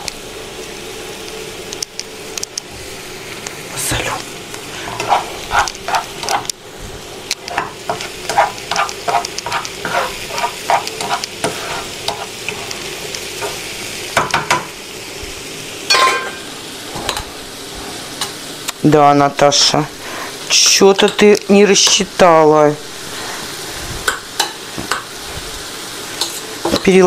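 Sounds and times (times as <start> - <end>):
mushrooms sizzling in a pan: 0.0 - 27.0
spoon stirring thick mixture: 4.8 - 6.5, 7.5 - 12.7.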